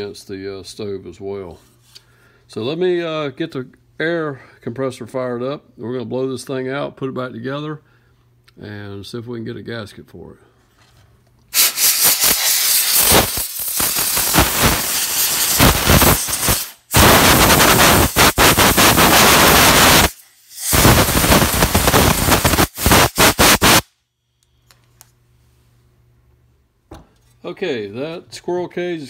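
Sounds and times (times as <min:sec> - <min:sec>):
compressed air blow gun hissing: 0:11.5 - 0:23.9.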